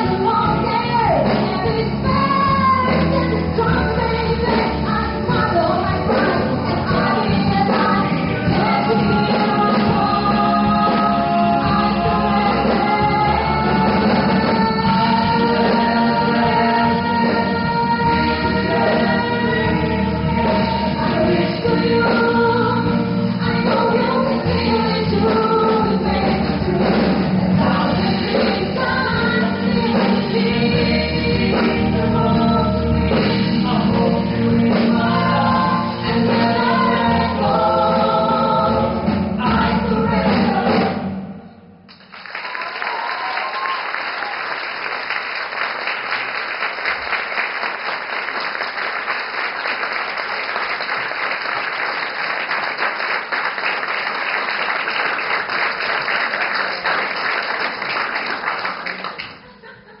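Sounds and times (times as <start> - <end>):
woman singing: 0.0 - 41.0
live band playing: 0.0 - 41.4
audience applauding: 41.9 - 59.5.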